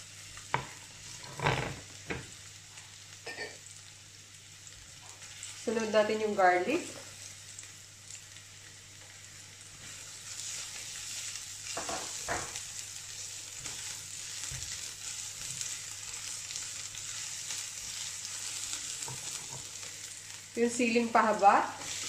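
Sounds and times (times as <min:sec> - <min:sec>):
knocks of stirring in a pan: 0:00.0 - 0:03.7, 0:09.1 - 0:22.0
garlic and onion sizzling in oil: 0:00.0 - 0:22.0.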